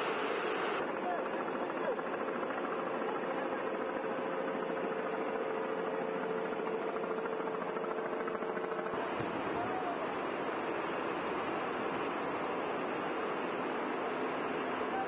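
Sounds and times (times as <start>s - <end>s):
steady hum: 0.0s - 0.9s.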